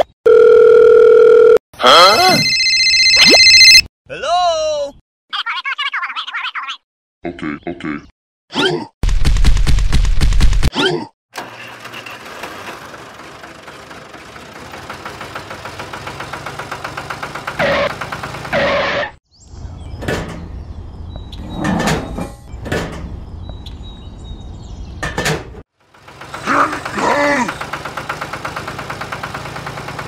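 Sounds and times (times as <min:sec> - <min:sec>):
tractor engine chugging: 0:11.4 - 0:18.6, 0:25.8 - 0:30.0.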